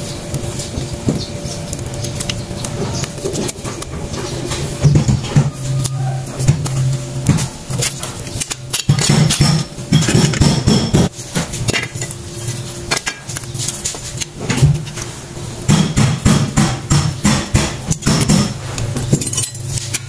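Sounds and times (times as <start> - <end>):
metal brake parts clinking: 19.0 - 20.0.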